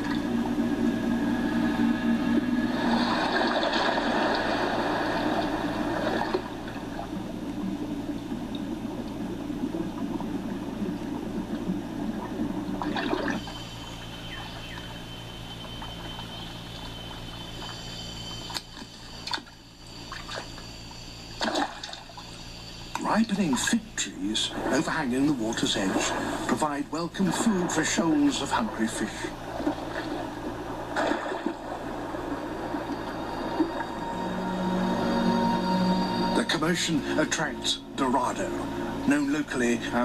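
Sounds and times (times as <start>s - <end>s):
water splashes: 0.0s - 14.2s, 21.3s - 34.5s
water rushing and sloshing: 0.0s - 20.7s, 21.3s - 40.0s.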